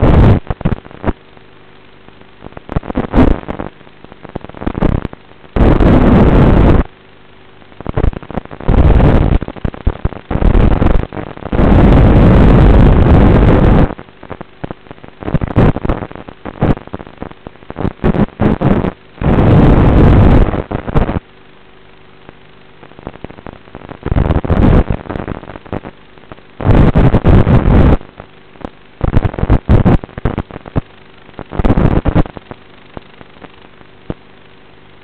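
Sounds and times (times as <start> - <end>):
choppy buzz: 0.0 - 1.2, 2.5 - 6.9, 7.8 - 14.4, 15.2 - 21.3
bursts of static hiss: 0.0 - 35.0.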